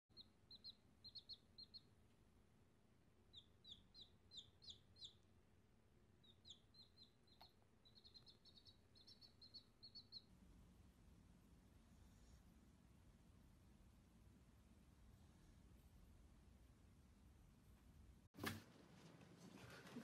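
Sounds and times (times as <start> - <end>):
baby chick peeping: 0.1 - 2.2, 3.2 - 5.4, 6.2 - 11.1.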